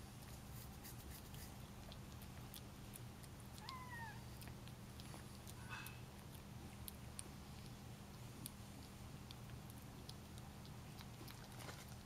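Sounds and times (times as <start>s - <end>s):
kitten eating clicks: 0.0s - 12.0s
kitten meowing: 3.5s - 4.4s.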